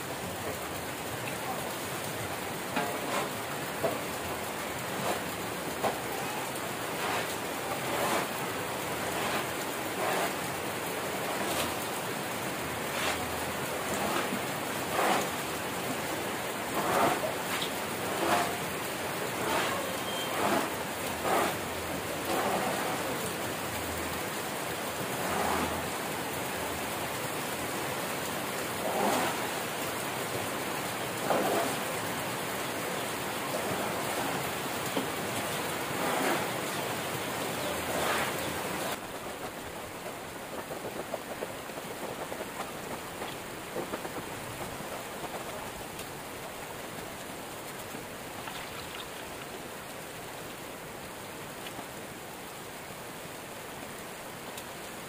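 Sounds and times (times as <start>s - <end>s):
crackers frying in sizzling oil: 7.0s - 7.3s.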